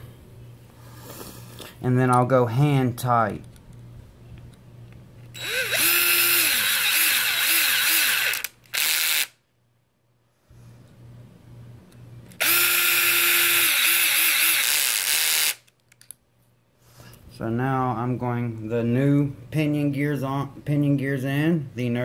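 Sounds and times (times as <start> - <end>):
power drill driving screws: 5.4 - 9.4, 12.4 - 15.6.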